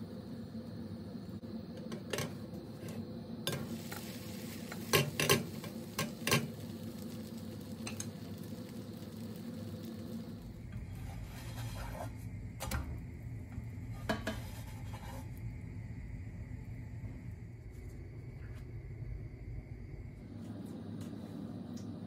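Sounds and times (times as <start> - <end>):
steady low hum: 0.0 - 22.0
spatula scraping frying pan: 2.8 - 7.1, 10.8 - 12.2, 13.9 - 15.4.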